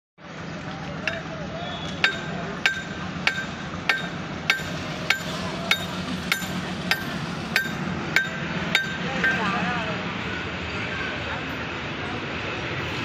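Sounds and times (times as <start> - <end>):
railway warning bell striking: 2.0 - 9.7.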